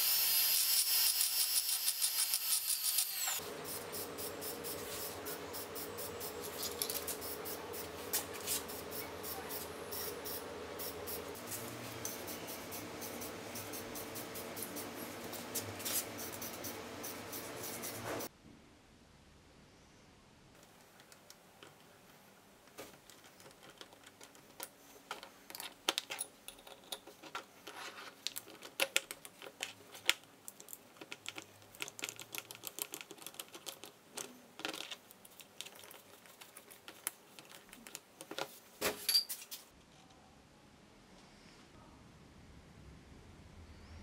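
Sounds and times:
metal parts clicking and clinking: 0:06.4 - 0:07.3, 0:22.9 - 0:36.0, 0:39.0 - 0:39.5.

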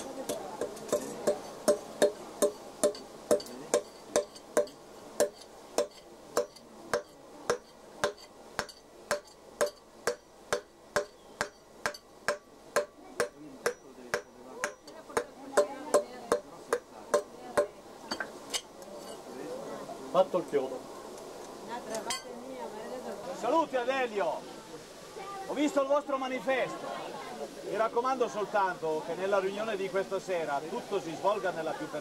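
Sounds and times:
hammer striking hot iron: 0:00.3 - 0:18.7.

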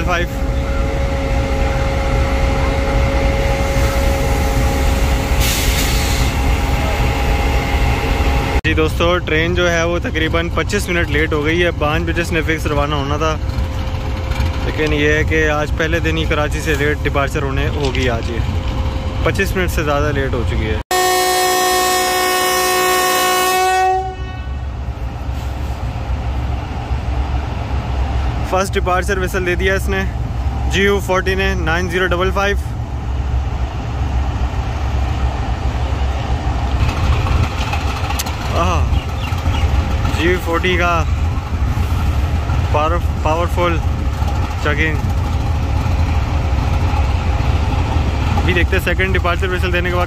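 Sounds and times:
locomotive horn blast: 0:00.0 - 0:08.6, 0:20.9 - 0:24.8
locomotive engine idling: 0:24.7 - 0:50.0.

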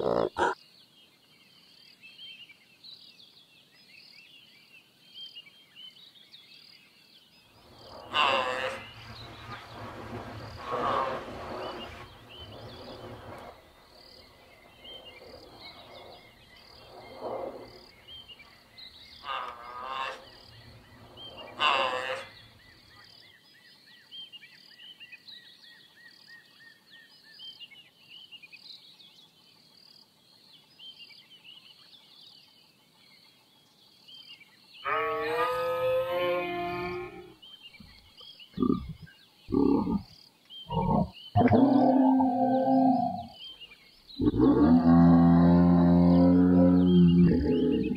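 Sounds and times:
giraffe calls: 0:00.0 - 0:00.6
insects chirping: 0:07.4 - 0:23.8, 0:36.8 - 0:47.9.

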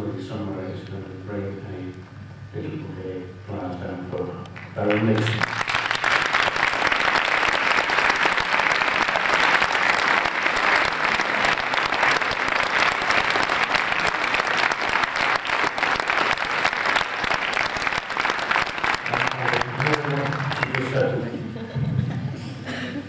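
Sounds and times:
audience applauding: 0:04.6 - 0:21.2.

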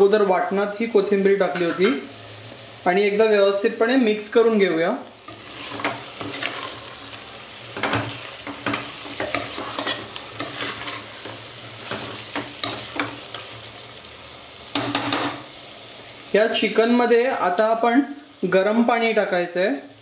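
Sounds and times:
masala sizzling: 0:00.0 - 0:20.0
metal spoon scraping pot: 0:07.8 - 0:11.1.

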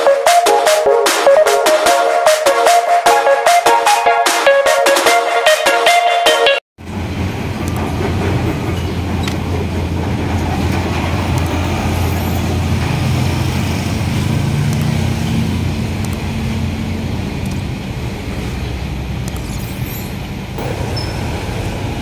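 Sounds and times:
low engine rumble of machinery: 0:06.8 - 0:22.0.

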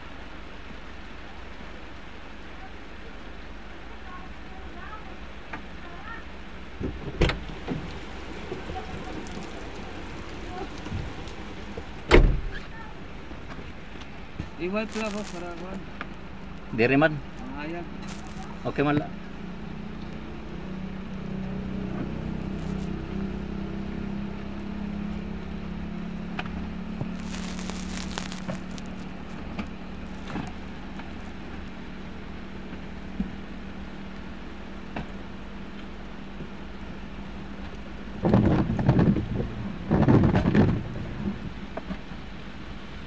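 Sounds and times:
heavy rain on pavement: 0:00.0 - 0:43.0
engine hum: 0:04.7 - 0:43.0
loud rumbling bursts: 0:27.1 - 0:29.2.

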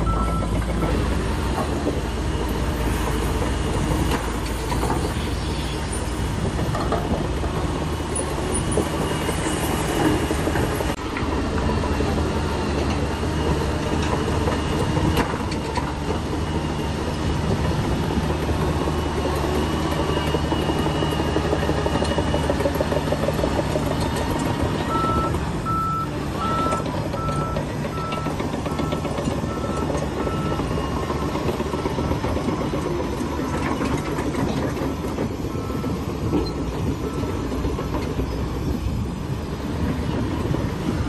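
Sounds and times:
reversing alarm beeping: 0:00.0 - 0:01.1, 0:24.7 - 0:32.7, 0:35.4 - 0:37.5
diesel engine running: 0:00.0 - 0:41.0.

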